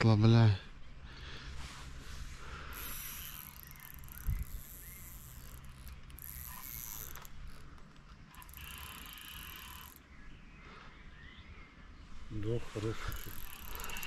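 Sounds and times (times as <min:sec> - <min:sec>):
fishing reel ratchet clicking: 0:02.7 - 0:10.0, 0:13.0 - 0:14.0.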